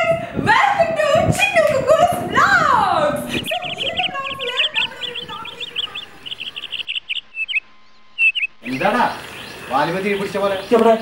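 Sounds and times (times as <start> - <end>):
small birds chirping: 3.3 - 11.0.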